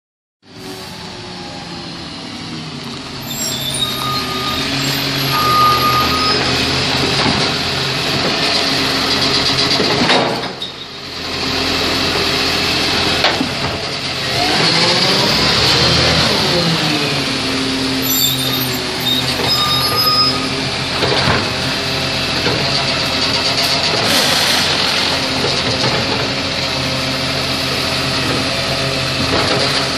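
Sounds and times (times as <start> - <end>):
garbage truck engine running: 0.9 - 29.9
hydraulic arm whining: 17.9 - 21.6.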